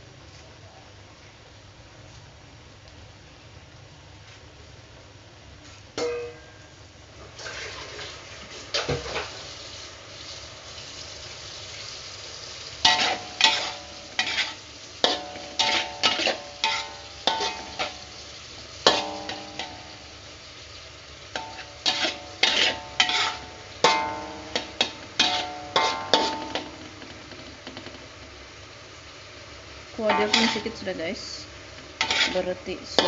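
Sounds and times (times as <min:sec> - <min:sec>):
light frying sizzle: 0:00.0 - 0:33.0
spatula clanking and scraping wok: 0:06.0 - 0:06.7, 0:08.7 - 0:09.5, 0:12.7 - 0:28.2, 0:30.0 - 0:33.0.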